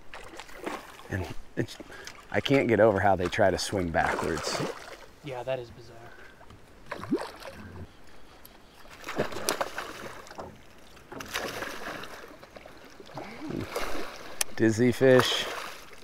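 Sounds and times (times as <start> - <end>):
fish splashing at surface: 11.1 - 14.4.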